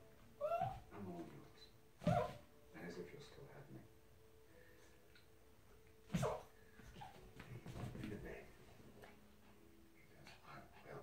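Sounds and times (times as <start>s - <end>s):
small dog yelping: 0.4s - 0.9s, 2.0s - 2.4s, 6.1s - 7.2s.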